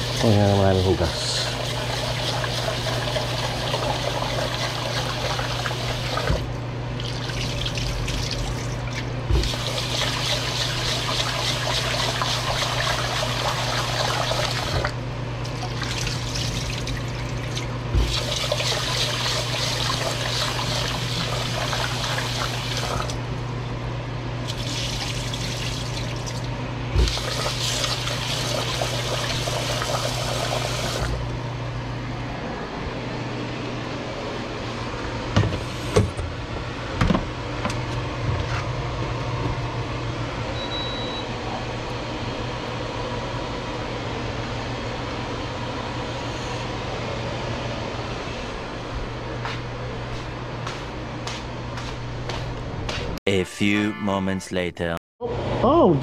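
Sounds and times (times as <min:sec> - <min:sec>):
faucet running into a pot: 0:00.0 - 0:06.4, 0:07.0 - 0:14.9, 0:15.5 - 0:23.2, 0:24.5 - 0:26.4, 0:27.0 - 0:31.2
water splashing into a sink: 0:01.1 - 0:23.2, 0:24.4 - 0:31.2.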